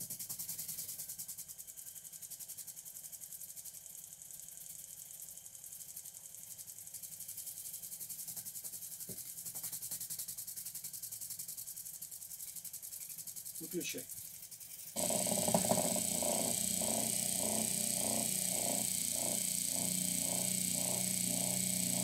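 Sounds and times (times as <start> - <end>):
motor spinning propeller: 9.8 - 22.0.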